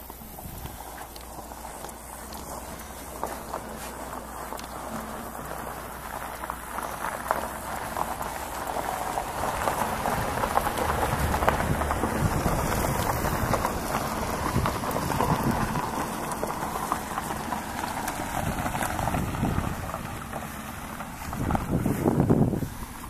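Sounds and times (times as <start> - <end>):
wind on microphone: 0.2 - 1.7, 9.1 - 16.9, 17.8 - 23.0.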